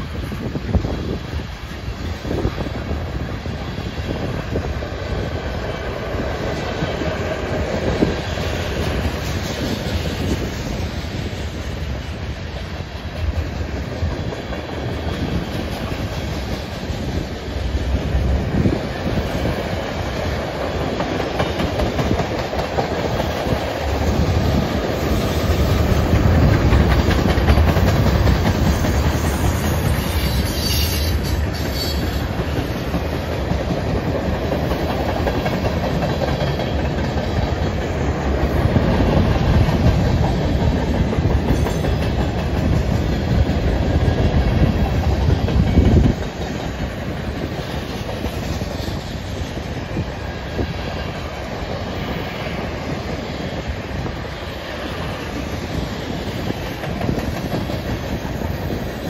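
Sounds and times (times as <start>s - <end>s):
steel wheels rumbling on rail: 0.0s - 59.0s
wheels clacking over rail joints: 11.7s - 49.6s.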